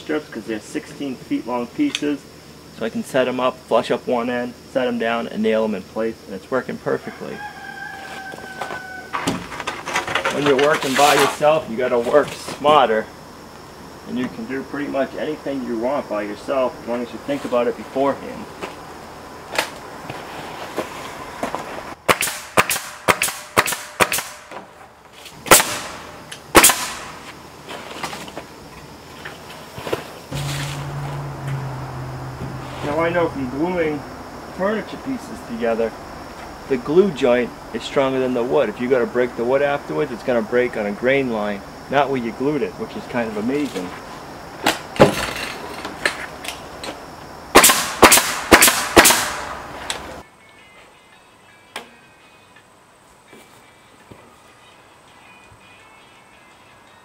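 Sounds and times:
nail gun shots: 22.1s - 24.6s, 25.5s - 27.2s, 47.5s - 49.5s.

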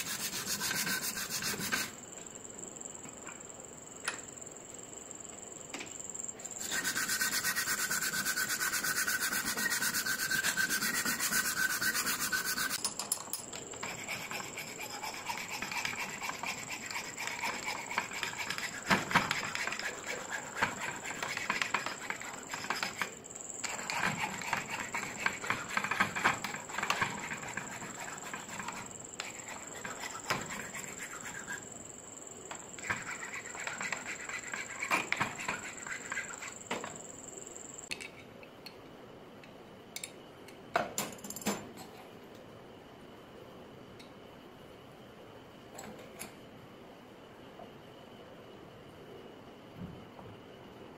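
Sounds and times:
file rasping wood: 0.0s - 2.0s, 6.6s - 12.8s, 13.8s - 23.1s, 23.7s - 31.7s, 32.8s - 36.6s
scratchy noise with high tone: 6.6s - 12.8s.

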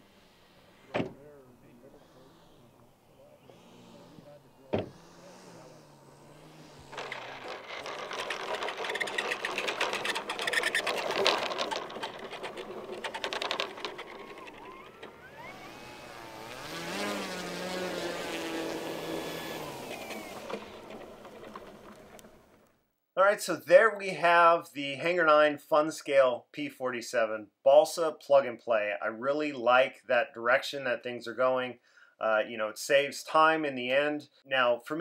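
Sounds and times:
electric motor whining: 0.0s - 22.6s
model plane wheels rattling on asphalt: 5.0s - 22.6s.

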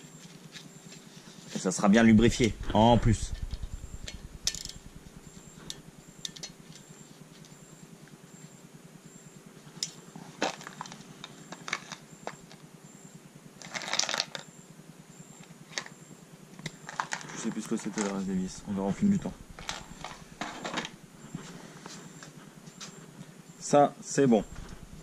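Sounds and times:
metal rattle: 2.4s - 5.8s.

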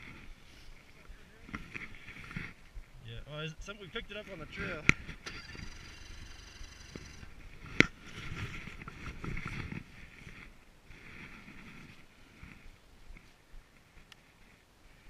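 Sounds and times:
snowmobile engine running: 4.1s - 9.9s.

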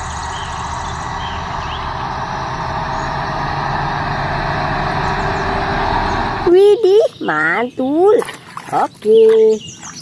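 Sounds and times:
tractor diesel engines running: 0.0s - 7.7s.

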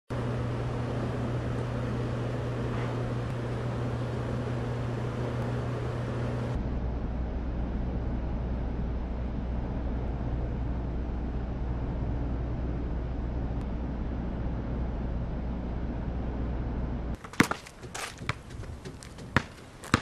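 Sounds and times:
low hum: 0.1s - 20.0s
basketball bouncing on concrete: 17.2s - 20.0s.

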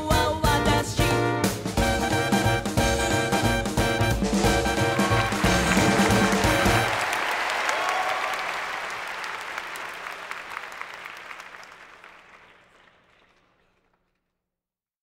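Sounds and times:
jazz band music: 0.0s - 7.0s
audience applause: 4.1s - 14.1s.

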